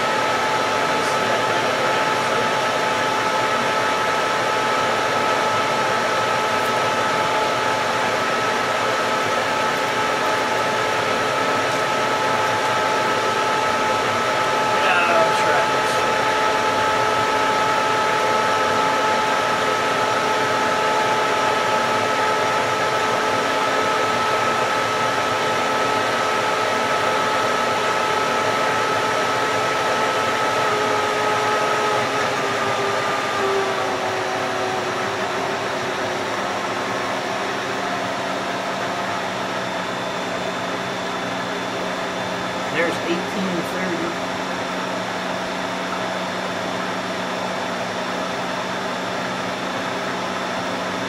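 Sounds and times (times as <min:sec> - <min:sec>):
motor whirring with whine: 0:00.0 - 0:51.0.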